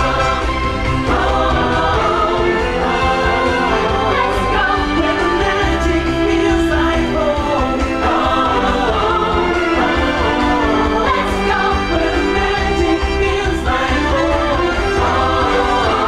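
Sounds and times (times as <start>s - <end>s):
group singing with musical backing: 0.0s - 16.0s.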